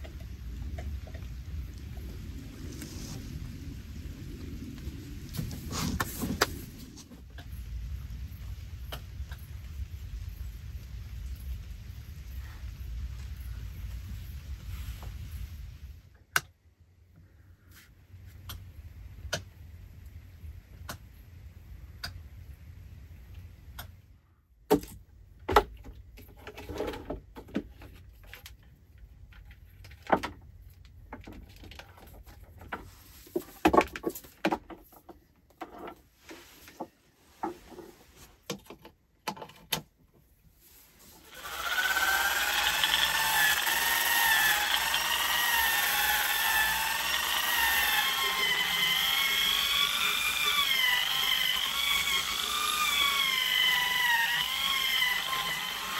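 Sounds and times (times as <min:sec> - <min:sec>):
power drill sanding wood: 0:41.2 - 0:55.9.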